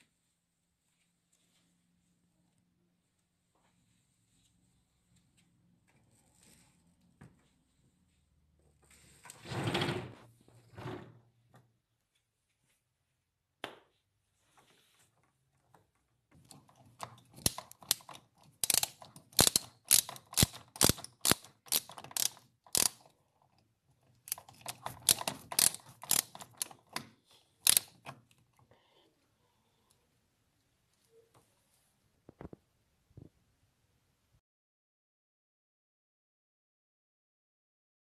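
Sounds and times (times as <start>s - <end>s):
screwdriver clicking on hose clamp: 16.4s - 23.1s, 24.2s - 28.3s.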